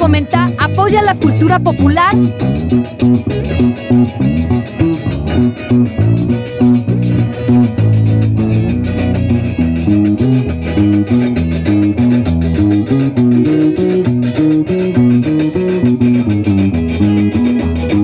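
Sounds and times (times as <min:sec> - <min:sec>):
steady dance beat: 0:00.0 - 0:11.2
bouncing bass line: 0:00.0 - 0:18.0
plucked and strummed guitars: 0:00.0 - 0:18.0.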